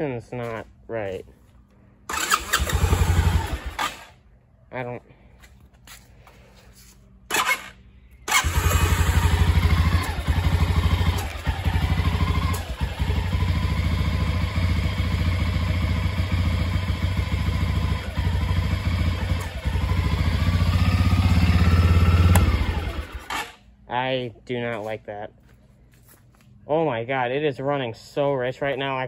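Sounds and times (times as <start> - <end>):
engine running rough: 8.3 - 23.6.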